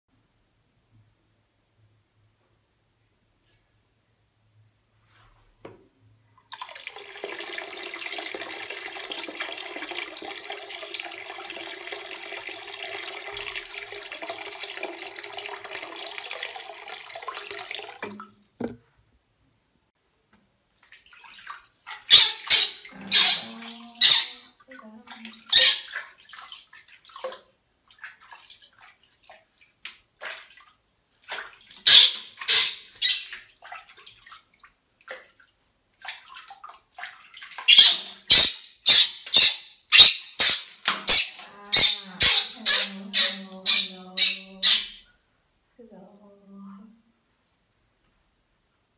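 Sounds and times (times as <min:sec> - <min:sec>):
water splashing in sink: 0:06.4 - 0:18.9, 0:20.7 - 0:45.0
tap running into full sink: 0:06.6 - 0:18.8.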